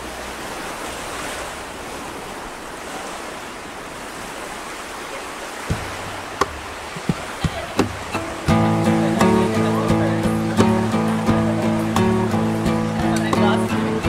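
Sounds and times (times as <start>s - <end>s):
ocean waves and surf: 0.0s - 14.0s
sharp taps: 5.7s - 8.3s.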